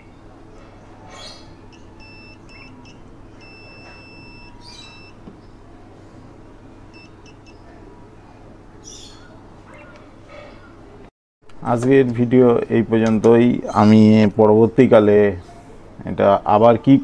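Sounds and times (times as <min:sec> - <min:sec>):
steady low hum: 0:00.0 - 0:17.0
multimeter continuity beeps: 0:01.7 - 0:05.2, 0:06.9 - 0:07.6.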